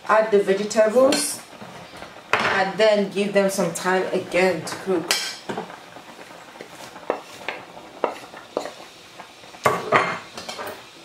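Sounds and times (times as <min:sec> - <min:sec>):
soup simmering: 0:00.0 - 0:11.0
plate and utensil clinking on pot: 0:09.7 - 0:10.8.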